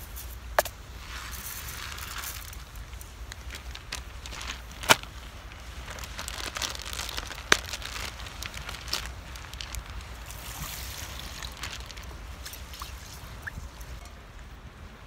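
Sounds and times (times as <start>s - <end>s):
plastic packaging crinkling: 1.4s - 13.0s.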